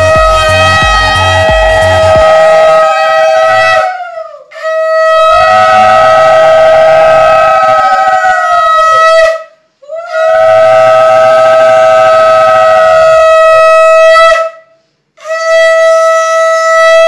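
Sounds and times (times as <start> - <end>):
conch shell blasts: 0.0 - 2.3.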